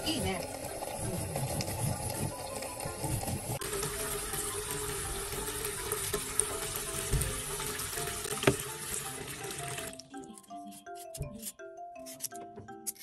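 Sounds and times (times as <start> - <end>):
tap running into basin of water: 0.0 - 10.0.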